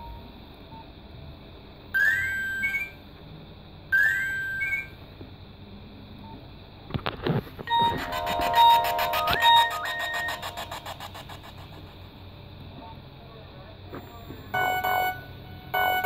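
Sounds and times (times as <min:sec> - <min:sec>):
phone rising beep chirps: 0:02.0 - 0:03.0, 0:04.0 - 0:05.0, 0:07.7 - 0:11.0, 0:14.6 - 0:16.0.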